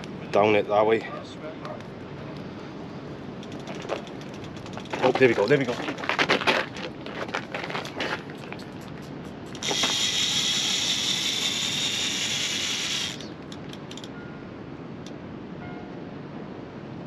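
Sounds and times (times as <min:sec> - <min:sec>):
fishing reel spool whirring: 0:03.4 - 0:05.2, 0:09.5 - 0:14.1.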